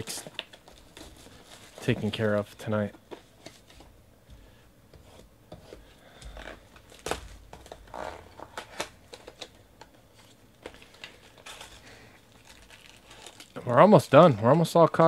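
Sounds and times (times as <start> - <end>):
plastic wrap crinkling: 6.3 - 15.0.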